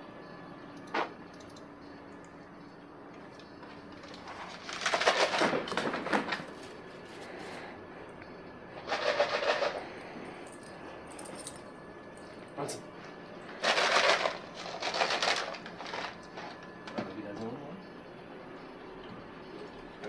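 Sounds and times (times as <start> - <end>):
plastic tub of treats rattling: 4.2 - 6.5, 8.9 - 9.8, 13.6 - 16.2.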